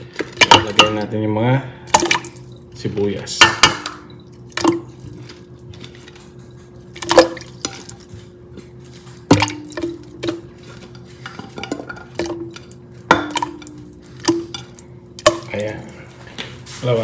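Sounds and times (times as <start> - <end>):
steady low hum: 0.0 - 17.0
metal utensils clinking on pot: 0.3 - 1.1, 9.3 - 15.9.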